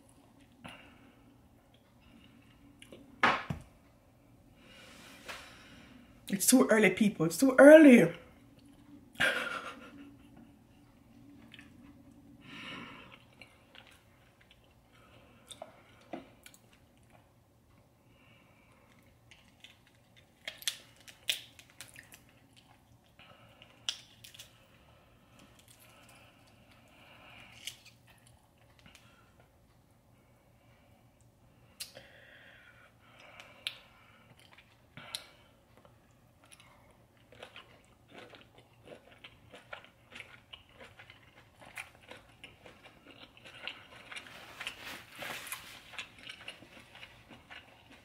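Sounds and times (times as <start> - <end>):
chewing and mouth sounds: 8.4 - 17.3, 18.7 - 24.6, 33.2 - 48.0.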